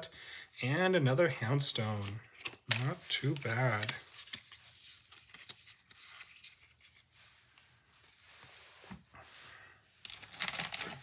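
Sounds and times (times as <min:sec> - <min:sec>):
cards sliding and tapping: 0:02.0 - 0:07.7
foil wrapper crinkling: 0:10.1 - 0:11.0.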